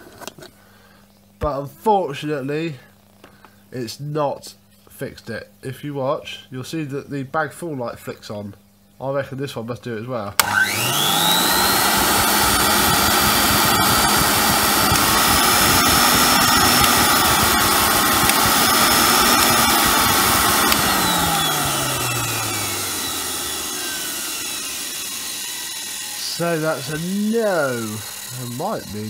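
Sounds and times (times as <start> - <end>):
vacuum cleaner motor whining: 10.4 - 29.0.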